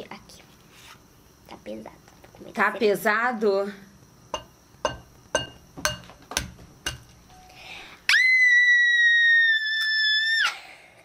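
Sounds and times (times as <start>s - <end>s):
egg tapping on glass bowl: 4.3s - 7.3s.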